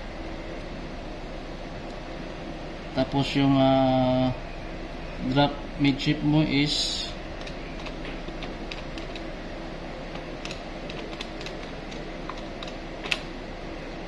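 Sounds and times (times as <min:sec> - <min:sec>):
calculator keys clicking: 0:07.4 - 0:09.3, 0:10.1 - 0:13.3.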